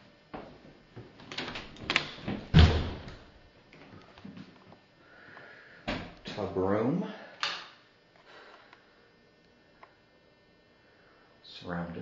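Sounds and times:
door thump: 2.3 - 3.2.

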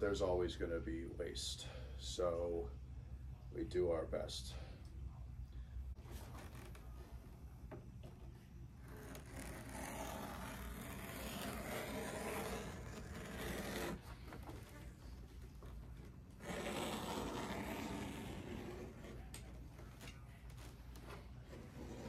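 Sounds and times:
knife scraping leather: 8.8 - 14.0, 16.4 - 19.3.

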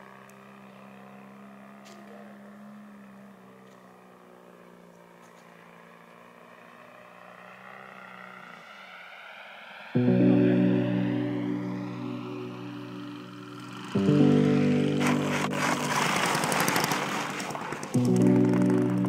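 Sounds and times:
model airplane engine running: 0.0 - 19.0
propeller whine: 0.0 - 19.0
music: 10.0 - 15.8, 18.0 - 19.0.

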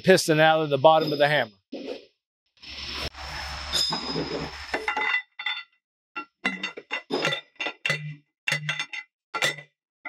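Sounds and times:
ringing metallic clanks: 4.9 - 9.7.

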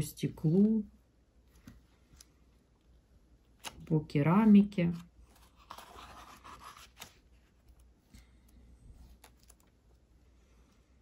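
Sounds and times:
book pages turning: 3.5 - 3.9, 4.9 - 8.3, 9.0 - 9.9.

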